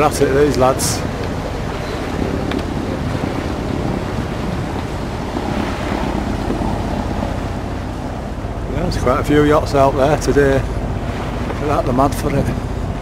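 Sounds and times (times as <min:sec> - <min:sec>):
sea water washing around boat: 0:00.0 - 0:13.0
wind on microphone: 0:00.0 - 0:13.0.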